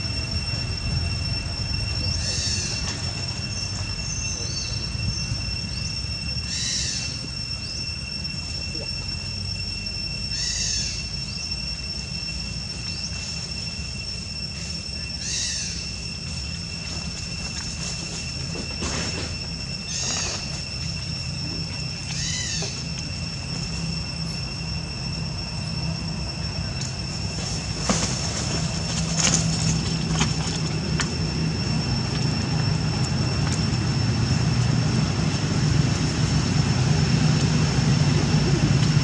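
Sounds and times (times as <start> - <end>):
chirps: 0.0 - 24.6
high-pitched whine: 0.0 - 39.0
low engine rumble: 0.0 - 39.0.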